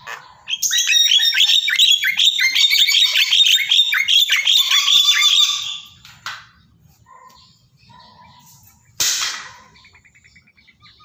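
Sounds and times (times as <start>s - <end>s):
bird chattering and whistling: 0.0s - 6.0s, 9.6s - 11.0s.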